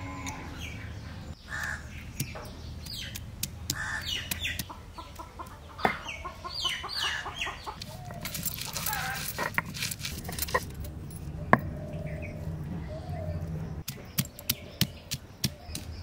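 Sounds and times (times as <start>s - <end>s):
chickens clucking: 0.0s - 9.6s
stone pestle pounding garlic: 2.1s - 4.7s, 13.8s - 16.0s.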